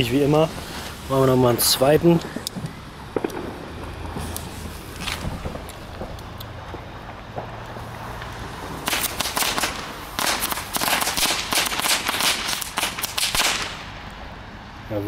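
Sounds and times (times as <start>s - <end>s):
firecrackers going off: 0.0s - 14.2s.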